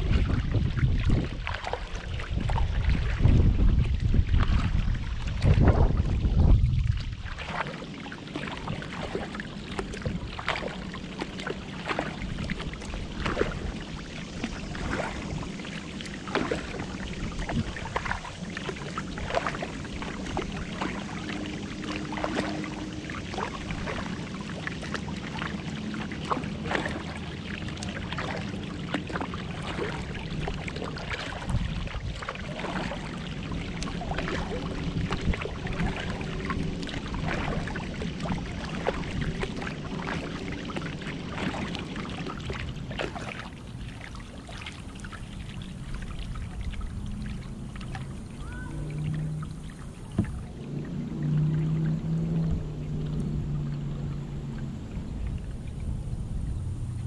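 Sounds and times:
wind gust on microphone: 0.0 - 10.8, 11.9 - 24.9, 29.5 - 43.9, 45.4 - 57.0
paddle splashes and drips: 0.0 - 57.0.

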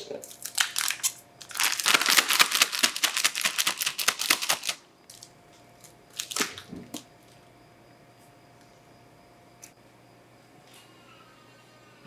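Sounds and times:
plastic piping bag crinkling: 0.2 - 5.3, 6.1 - 7.0.

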